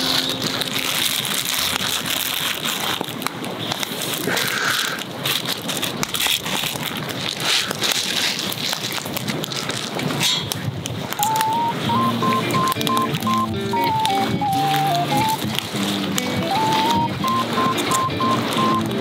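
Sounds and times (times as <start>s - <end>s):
water at a rolling boil: 0.0s - 11.2s
wood fire crackling: 0.0s - 11.5s, 12.2s - 19.0s
plastic bag crinkling: 0.0s - 19.0s.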